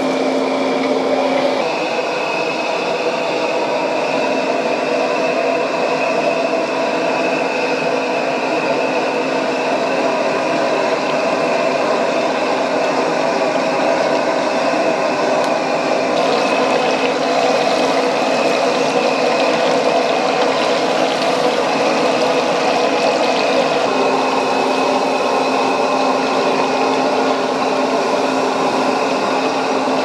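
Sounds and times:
gas burner roaring: 0.0 - 30.0
shrimp sizzling in hot oil: 0.0 - 30.0.

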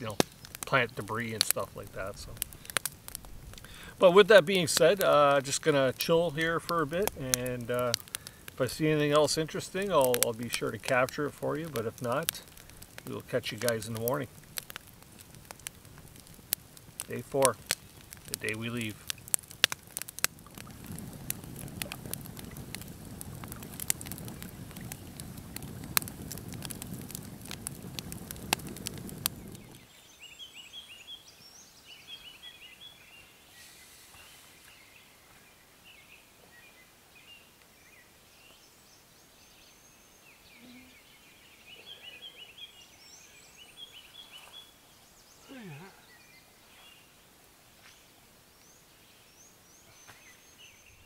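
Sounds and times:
birds chirping: 0.0 - 14.4, 15.2 - 51.0
campfire crackling and popping: 0.0 - 38.7.

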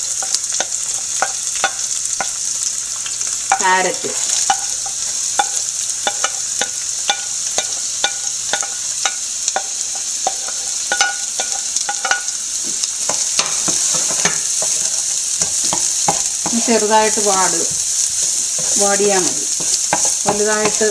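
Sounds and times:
hot oil sizzling in a frying pan: 0.0 - 20.9
wooden spatula scraping and tapping: 4.4 - 16.6, 19.5 - 20.9.

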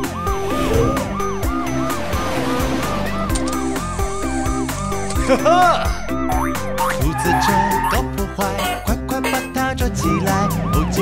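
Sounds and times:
upbeat children's song music: 4.0 - 11.0
cartoon police siren yelping: 6.8 - 11.0.

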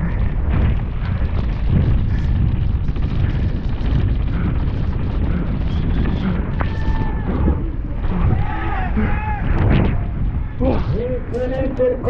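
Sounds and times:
mountain bike rattling over trail: 0.0 - 12.0
wind buffeting microphone: 0.0 - 12.0.

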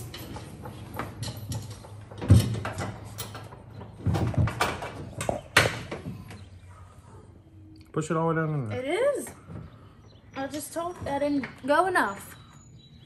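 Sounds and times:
metal hardware clanking and rattling: 0.0 - 6.4.

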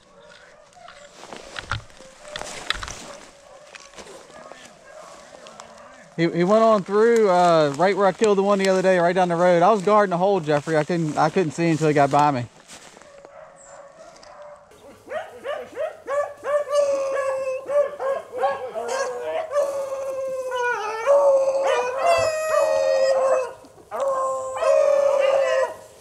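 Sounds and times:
hounds baying: 0.0 - 6.2, 12.9 - 26.0.

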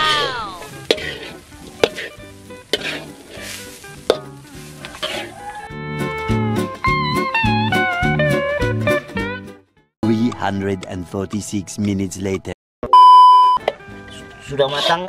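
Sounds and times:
spatula scraping a wok: 0.0 - 5.7, 14.7 - 15.0
guitar music: 0.0 - 12.4
spatula clinking against pan: 0.9 - 3.1.

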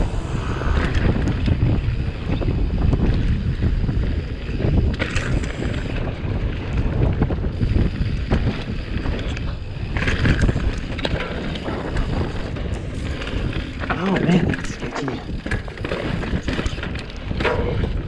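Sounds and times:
wind buffeting microphone: 0.0 - 18.0
bike knocking and rattling: 3.4 - 18.0.

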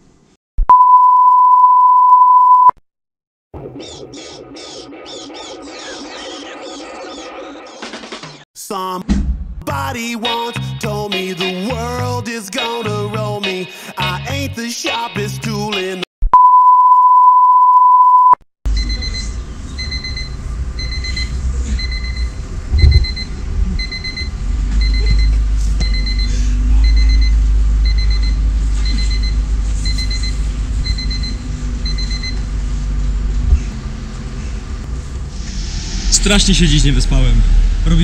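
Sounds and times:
steady electronic beep tone: 0.7 - 2.8, 16.4 - 32.4
alarm clock beeping: 16.6 - 32.4
low rumble: 20.1 - 25.7.

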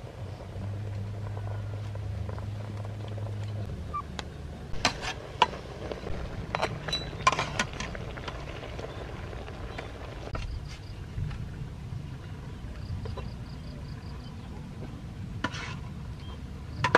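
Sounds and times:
low steady hum: 0.0 - 16.9.

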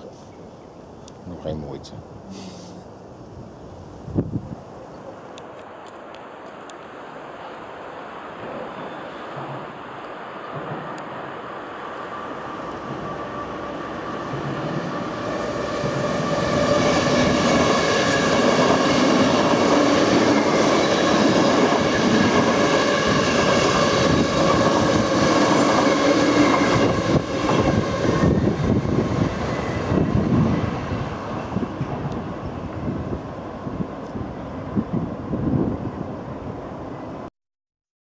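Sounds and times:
train wheels rushing on rails: 7.3 - 37.2.

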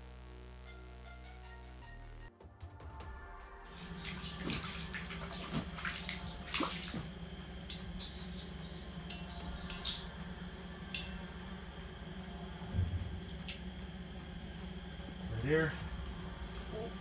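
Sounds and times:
fish splashing in water: 3.7 - 7.2.

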